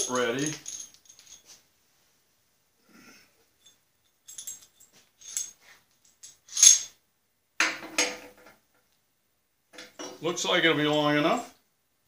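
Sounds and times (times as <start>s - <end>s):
metal tools clinking: 0.0s - 1.6s, 3.6s - 7.0s.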